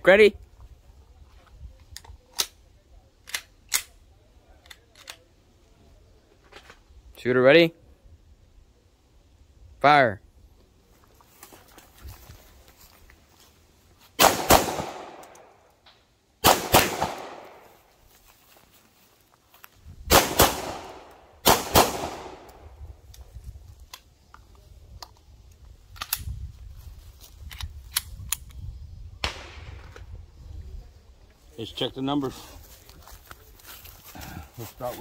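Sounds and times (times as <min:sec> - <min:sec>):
pistol shots echoing: 0:14.2 - 0:15.5, 0:16.4 - 0:17.8, 0:20.1 - 0:22.6.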